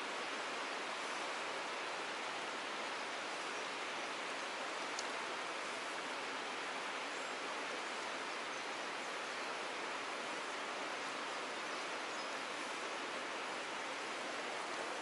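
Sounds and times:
stream water rushing over rocks: 0:00.0 - 0:15.0.

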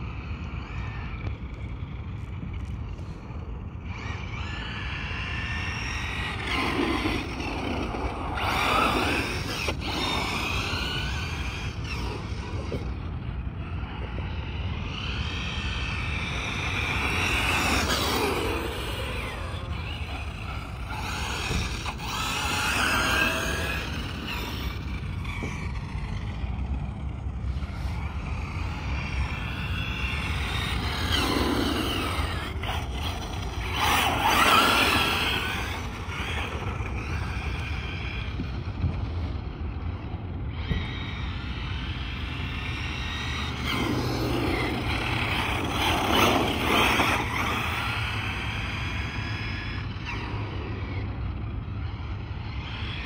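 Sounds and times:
electric motor whining: 0:04.1 - 0:39.0, 0:40.5 - 0:53.0.

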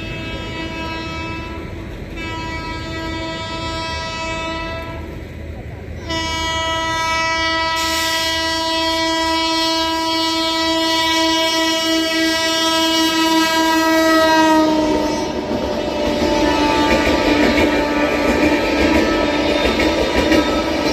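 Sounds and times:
train horn long blast: 0:00.0 - 0:05.2, 0:06.0 - 0:20.9
wheels clattering on rails: 0:14.7 - 0:20.9.

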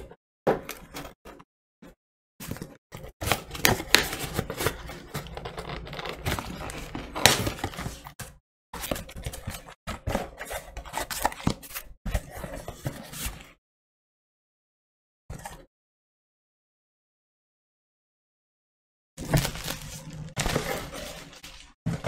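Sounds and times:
cardboard scraping and tearing: 0:02.4 - 0:08.2, 0:19.2 - 0:22.0.

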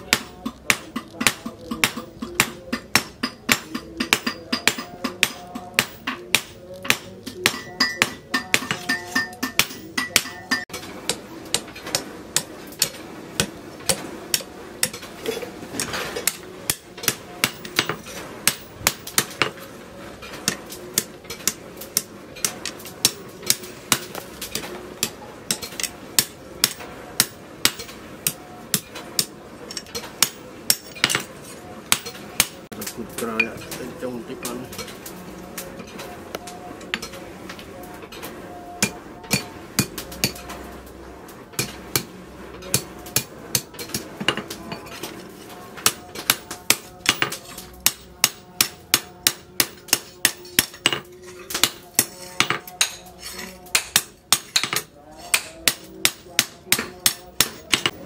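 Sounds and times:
hammer striking steel blade: 0:00.0 - 0:15.1.

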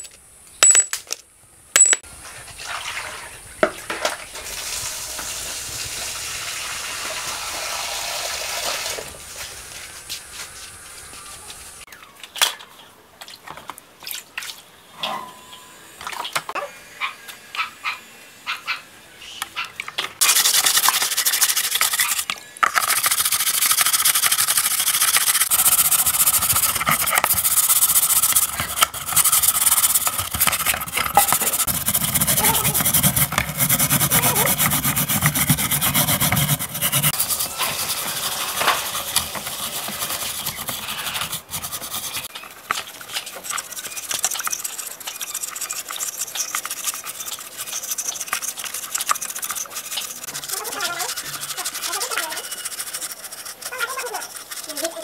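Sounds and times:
bristle brush scrubbing metal: 0:20.2 - 0:55.0.

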